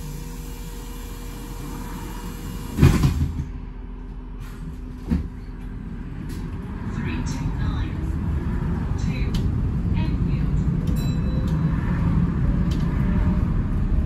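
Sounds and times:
bus engine hum: 0.0s - 14.0s
heavy clunk with rattle: 2.8s - 3.6s, 4.4s - 5.6s.

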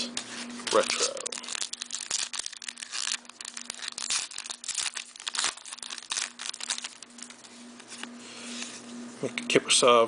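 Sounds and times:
plastic wrapper crinkling and tearing: 0.7s - 7.5s.

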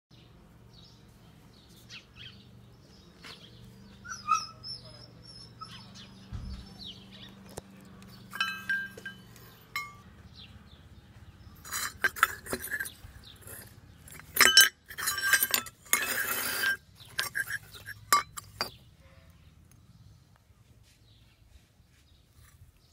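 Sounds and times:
bird chirps: 0.1s - 11.7s
small metal bells clinking: 8.1s - 10.0s, 11.6s - 18.7s.

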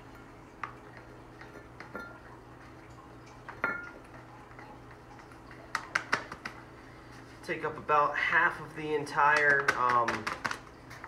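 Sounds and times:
glass clinks and taps: 1.4s - 2.3s, 3.5s - 4.0s.

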